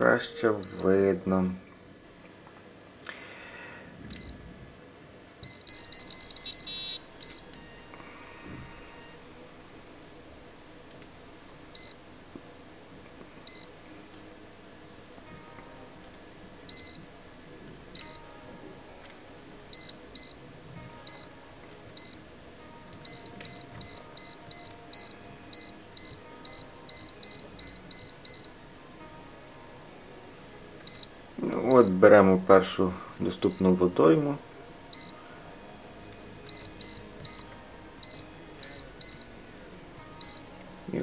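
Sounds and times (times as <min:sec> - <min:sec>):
short high key-press beeps: 0:05.4 - 0:07.5, 0:36.5 - 0:39.3.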